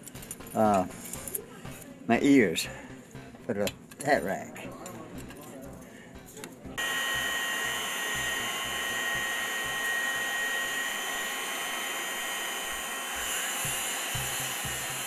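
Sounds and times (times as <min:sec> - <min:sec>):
forge blower whining: 0:06.8 - 0:15.0.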